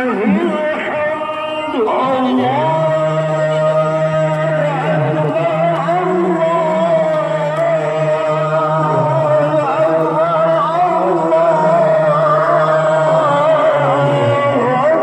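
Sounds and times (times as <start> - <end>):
melodic chanting: 0.0 - 15.0.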